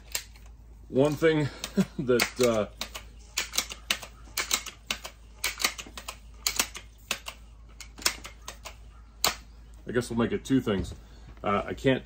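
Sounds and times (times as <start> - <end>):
air rifle pump clicks: 1.1 - 9.5.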